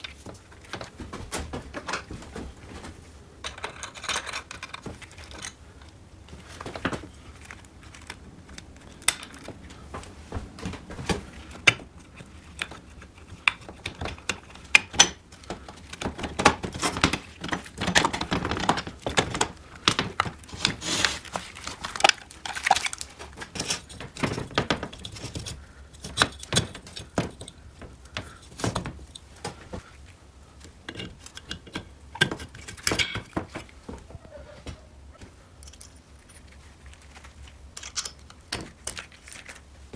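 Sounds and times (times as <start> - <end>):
metal engine parts clinking: 3.4 - 5.5.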